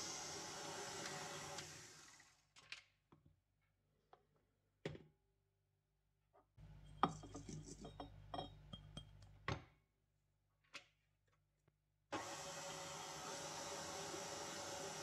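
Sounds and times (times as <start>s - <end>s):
stand mixer whirring: 0.0s - 2.3s, 12.2s - 15.0s
clinks and knocks in bowl: 6.6s - 9.5s.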